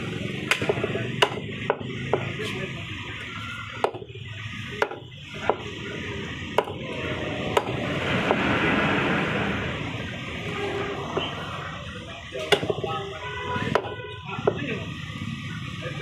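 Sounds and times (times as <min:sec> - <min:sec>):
blade chopping on wooden block: 0:00.4 - 0:02.3, 0:03.8 - 0:04.1, 0:04.8 - 0:05.6, 0:06.6 - 0:06.8
rushing noise: 0:05.8 - 0:12.5.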